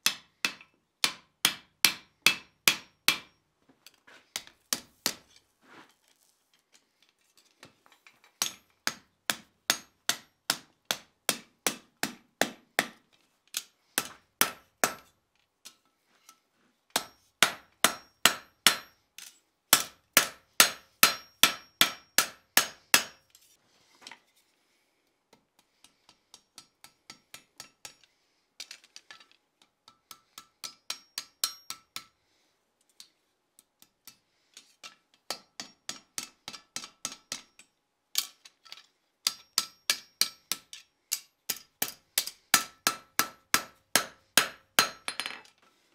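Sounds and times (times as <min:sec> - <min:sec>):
hammer striking steel on anvil: 0:00.0 - 0:03.4, 0:08.4 - 0:13.0, 0:14.0 - 0:15.1, 0:16.9 - 0:23.2, 0:29.9 - 0:32.2, 0:35.3 - 0:37.7, 0:39.3 - 0:45.4.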